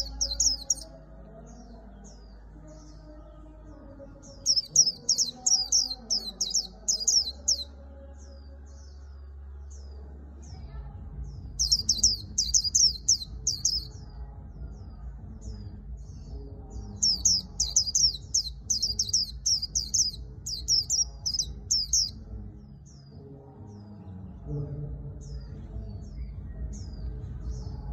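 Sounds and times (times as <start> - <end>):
bird twittering song: 0.0 - 27.9.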